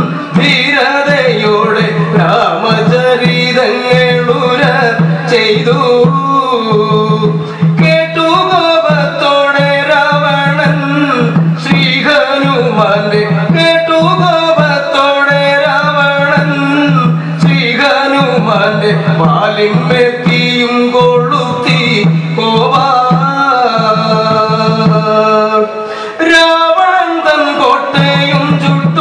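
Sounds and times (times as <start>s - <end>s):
drum strikes: 0.0s - 29.0s
person singing: 0.0s - 29.0s.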